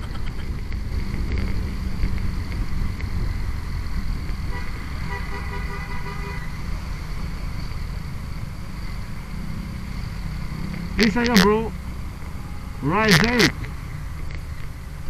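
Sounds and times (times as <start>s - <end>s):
wind and motorcycle engine rumble: 0.0s - 15.0s
vehicle horn: 4.5s - 6.6s, 12.3s - 13.1s.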